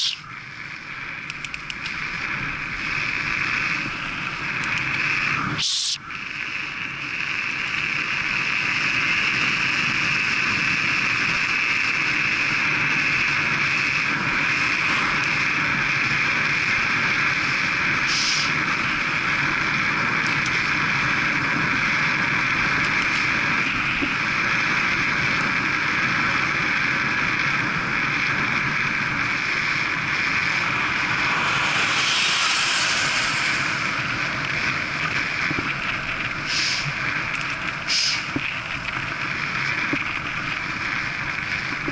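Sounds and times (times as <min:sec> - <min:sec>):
bike tyres on tarmac: 0:00.0 - 0:41.9
wind rushing over microphone: 0:00.0 - 0:41.9
sharp hiss: 0:05.4 - 0:06.1, 0:18.0 - 0:18.6, 0:30.4 - 0:34.9, 0:36.4 - 0:36.9, 0:37.9 - 0:38.4.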